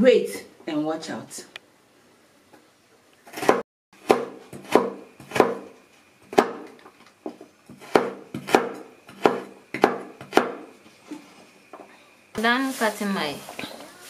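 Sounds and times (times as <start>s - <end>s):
knife chopping on wooden board: 3.3s - 5.7s, 6.3s - 6.8s, 7.7s - 10.7s.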